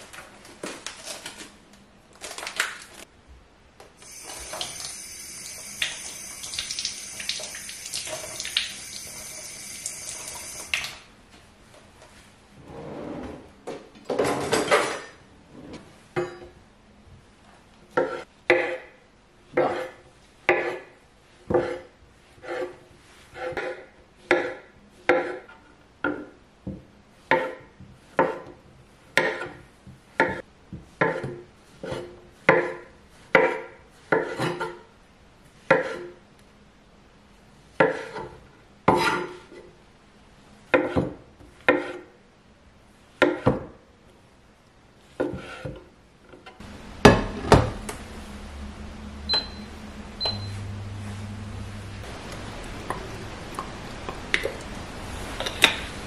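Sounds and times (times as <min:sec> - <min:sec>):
knife chopping on wooden board: 0:19.5 - 0:20.9
steady low hum: 0:46.6 - 0:55.4
short electronic beeps: 0:49.3 - 0:50.6.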